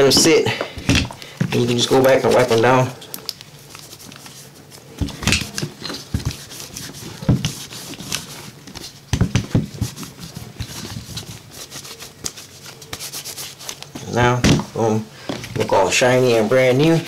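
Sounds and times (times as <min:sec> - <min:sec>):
cloth rubbing on handgun: 0:01.6 - 0:02.8, 0:03.6 - 0:14.0.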